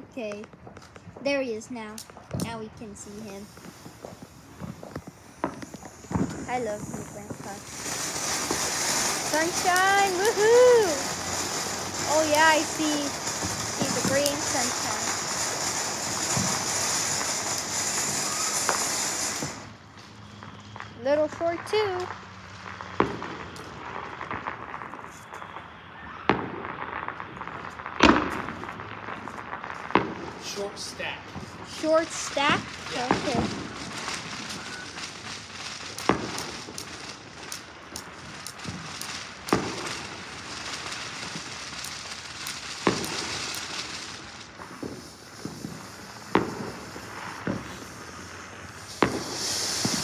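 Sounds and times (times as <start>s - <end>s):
faint popping and crackling: 0.0s - 19.7s
firework bangs: 0.0s - 50.0s
firework crackle and hiss: 0.0s - 50.0s.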